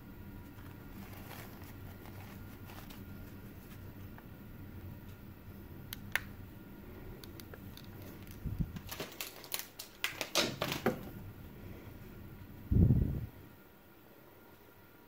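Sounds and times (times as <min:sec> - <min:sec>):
rustles: 0:00.5 - 0:04.1.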